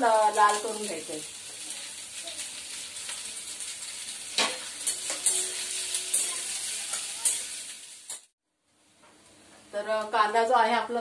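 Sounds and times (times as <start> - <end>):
onions sizzling in a pan: 0.0 - 8.4.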